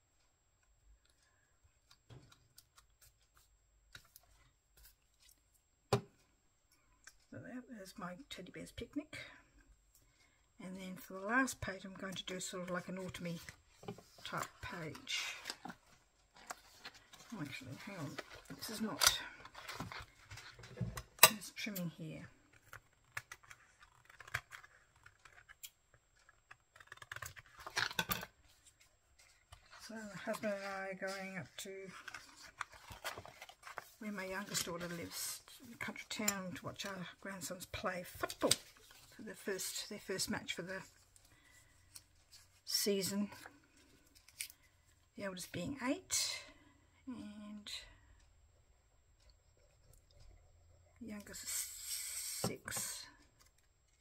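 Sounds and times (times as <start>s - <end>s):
paper rustling: 13.0s - 18.9s, 26.2s - 36.0s
sketchbook page turning: 22.6s - 39.7s.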